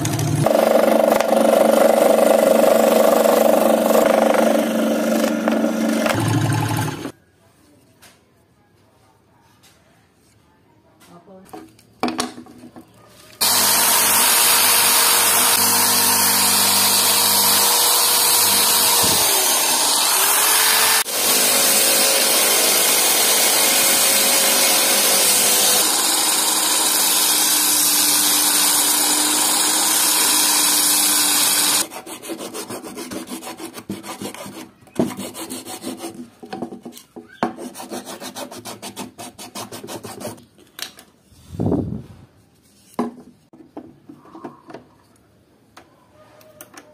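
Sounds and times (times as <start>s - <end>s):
sanding disc running: 0.0s - 7.1s, 13.4s - 31.9s
hand file rasping wood: 13.4s - 36.3s, 37.5s - 40.4s.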